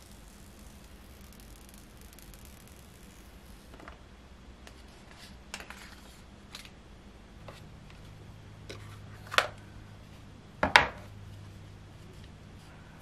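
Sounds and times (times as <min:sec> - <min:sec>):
paper wrap peeling: 0:00.0 - 0:03.8.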